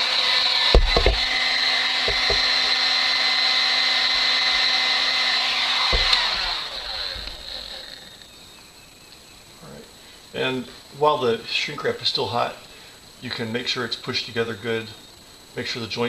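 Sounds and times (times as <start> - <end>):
heat gun fan whining: 0.0 - 9.2
handling knocks: 0.8 - 2.9, 5.8 - 8.1.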